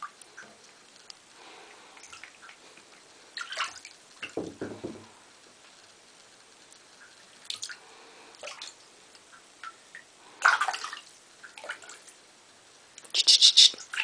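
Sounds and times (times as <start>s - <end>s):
cat splashing water: 1.4s - 4.4s, 9.6s - 12.2s.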